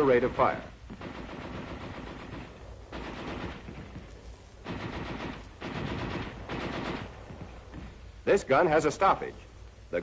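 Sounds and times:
machine gun firing in bursts: 0.0 - 7.9.

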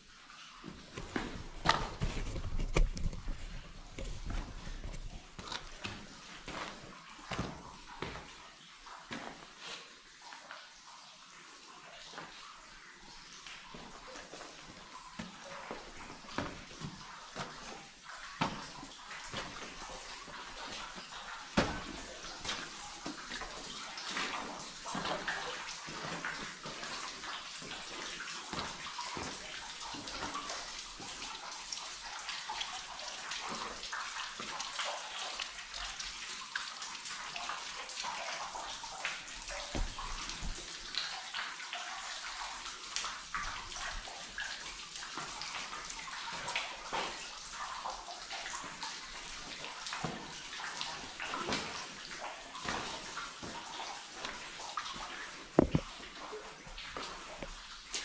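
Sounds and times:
water trickling and splashing: 0.0 - 58.0
footsteps on wet rock and gravel: 0.9 - 8.3, 39.7 - 40.6.

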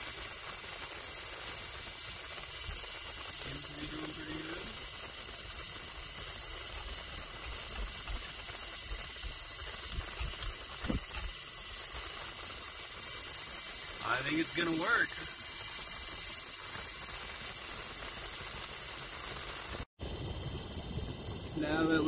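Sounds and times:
blower fan whirring: 2.6 - 16.2, 20.0 - 22.0
low thumps and clicks: 10.2 - 11.3.

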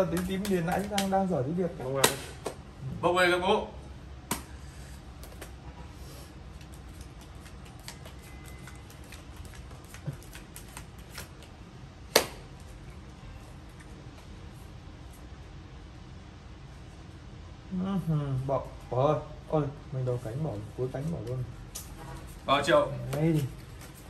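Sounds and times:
playing cards tapping on straw mat: 0.0 - 1.3, 6.5 - 12.7.

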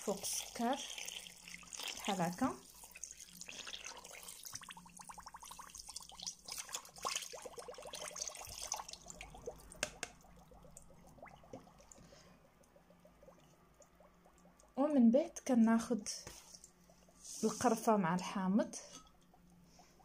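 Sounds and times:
water pouring into metal pot: 0.0 - 12.3.

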